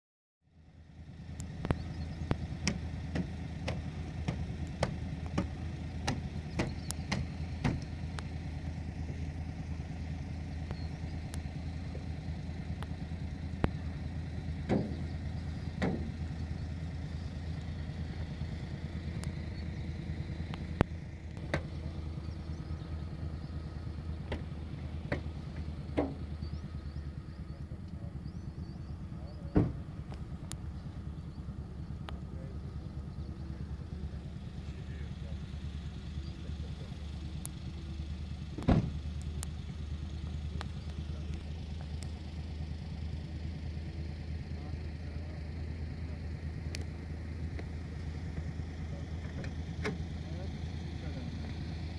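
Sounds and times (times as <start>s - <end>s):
engine humming: 0.4s - 51.9s
sharp clicks: 1.3s - 8.4s, 19.1s - 19.7s.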